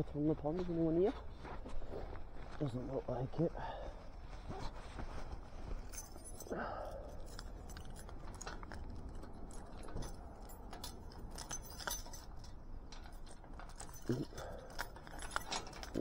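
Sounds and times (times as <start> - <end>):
keys jangling: 5.8 - 16.0.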